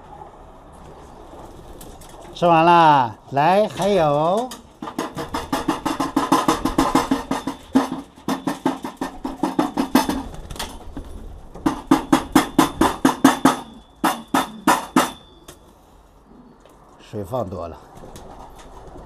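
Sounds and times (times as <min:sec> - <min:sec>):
pigeons pecking metal trough: 0:03.4 - 0:15.6.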